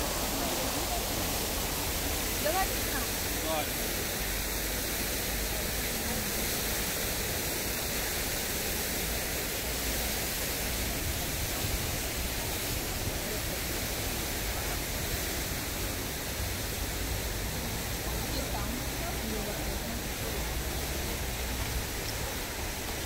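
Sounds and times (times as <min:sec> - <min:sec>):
fountain water splashing on rocks: 0:00.0 - 0:23.0.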